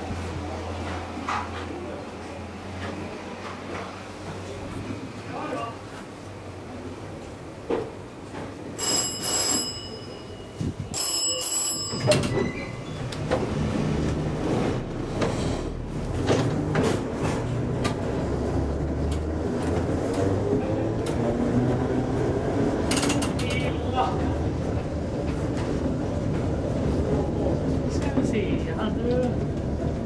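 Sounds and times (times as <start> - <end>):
tram bell ringing: 8.7 - 13.1
wheels clicking over rails: 11.0 - 23.9.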